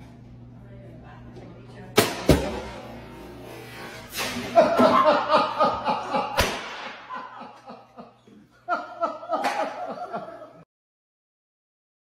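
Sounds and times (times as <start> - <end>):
people laughing: 4.3 - 10.7.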